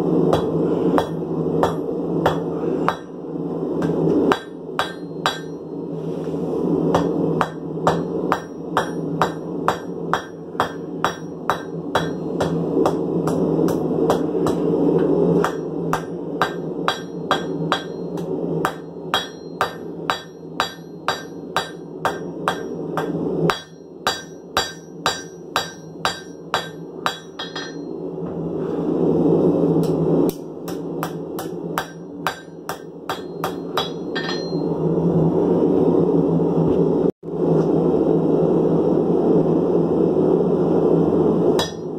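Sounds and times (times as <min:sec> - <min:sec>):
steady hum: 0:00.0 - 0:41.9
hammer striking metal on anvil: 0:00.3 - 0:03.2, 0:03.8 - 0:05.8, 0:06.9 - 0:28.0, 0:29.8 - 0:34.8, 0:41.6 - 0:41.9.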